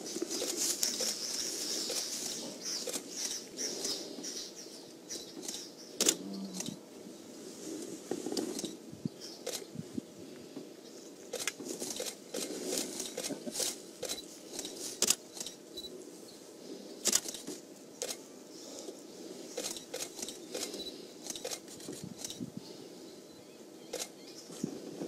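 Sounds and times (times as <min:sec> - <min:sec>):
sharp clicks: 0:05.4 - 0:06.8, 0:11.3 - 0:15.6, 0:19.6 - 0:22.4, 0:23.9 - 0:24.2.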